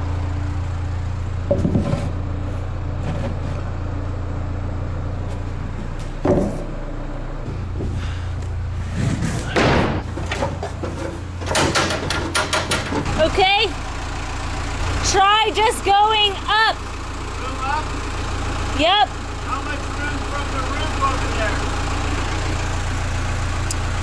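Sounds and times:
forklift engine idling: 0.0 - 24.0
knocks and thumps: 1.5 - 2.2, 5.9 - 6.8, 7.4 - 8.0, 9.0 - 13.1.

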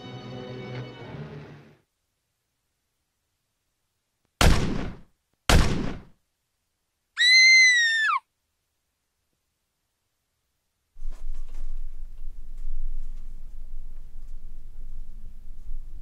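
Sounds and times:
gunshots: 4.4 - 6.1
woman screaming: 7.2 - 8.2.

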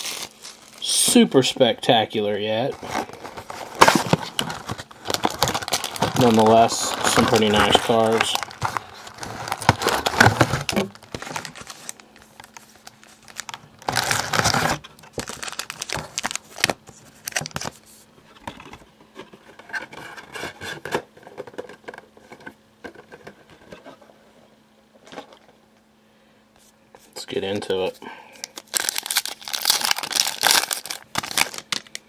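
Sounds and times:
packaging crinkling and tearing: 0.0 - 1.1, 2.6 - 17.8, 28.4 - 32.0.

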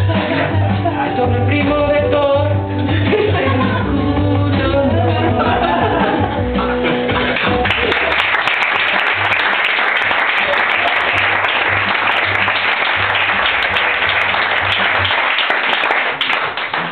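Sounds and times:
audience applauding: 7.0 - 16.9.

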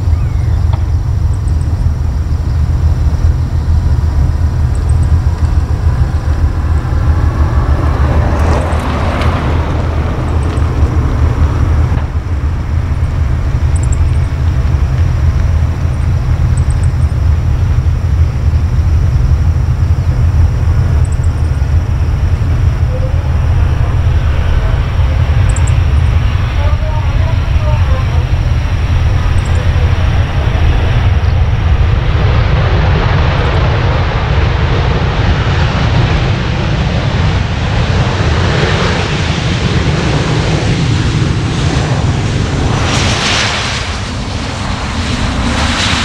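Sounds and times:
faint high chirps: 0.0 - 1.9, 4.3 - 6.6, 12.9 - 14.5, 15.8 - 17.3, 20.9 - 21.8, 22.4 - 26.2
jet engines rumbling: 0.0 - 46.0.

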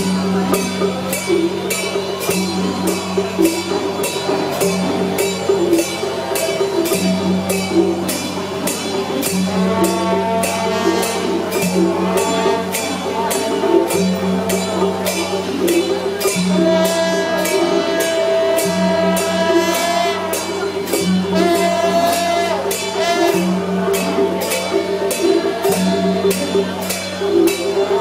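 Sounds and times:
clashing percussion: 0.0 - 28.0
drums: 0.0 - 28.0.

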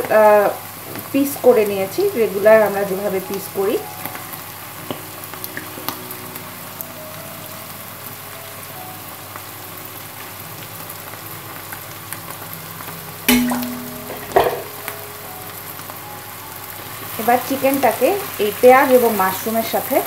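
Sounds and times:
chicken sizzling in hot oil: 0.0 - 20.0
knocks of food tipped into pan: 13.3 - 14.8.

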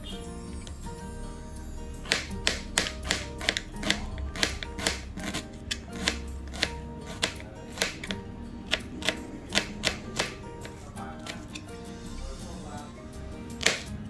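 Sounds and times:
background music: 0.0 - 14.0
knife tapping on cutting board: 5.7 - 11.4.

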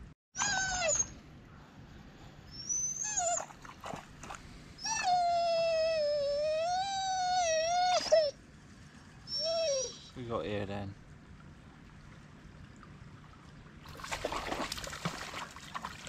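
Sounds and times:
dog whining: 0.4 - 1.2, 2.5 - 3.5, 4.8 - 8.4, 9.2 - 10.2.

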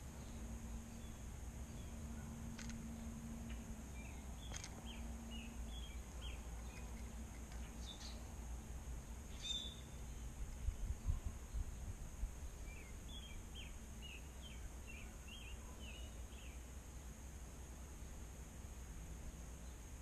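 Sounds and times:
faint steady hum: 0.0 - 20.0
low steady rumble: 0.0 - 20.0
bird chirps: 0.2 - 8.3, 9.3 - 10.3.

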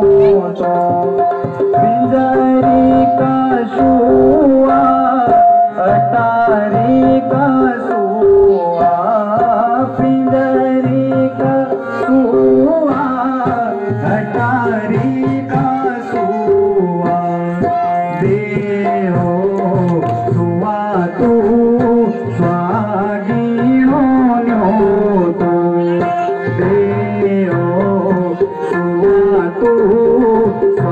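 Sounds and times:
harmonium holding notes: 0.0 - 30.9
person singing: 0.0 - 30.9
tabla rhythm: 0.0 - 30.9.

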